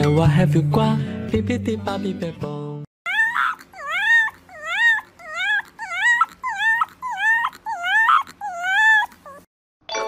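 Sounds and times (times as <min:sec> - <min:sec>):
puppy howling: 0:03.1 - 0:09.5.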